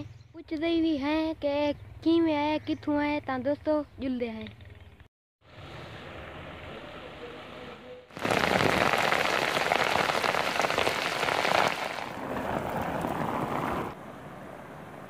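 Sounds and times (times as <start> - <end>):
heavy rain on muddy ground: 8.1 - 14.0.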